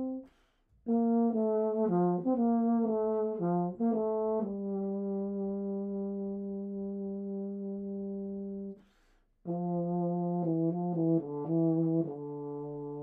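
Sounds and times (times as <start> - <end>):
short breath: 0.2 - 0.8, 8.8 - 9.4.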